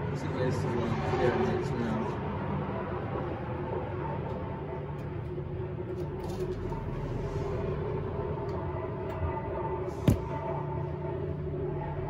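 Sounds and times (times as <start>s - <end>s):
sharp knock: 10.0s - 10.4s.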